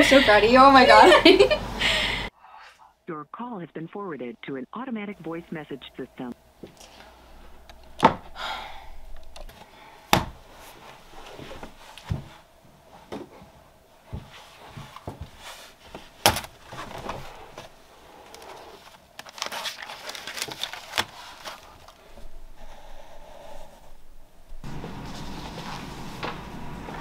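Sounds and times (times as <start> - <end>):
paper pages rustling: 14.5 - 22.0.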